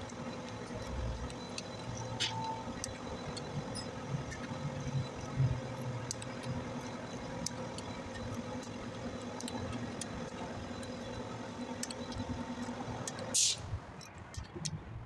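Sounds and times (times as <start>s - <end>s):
low machine hum: 0.0s - 14.3s
metallic wrench clicks: 5.8s - 8.8s, 11.8s - 14.8s.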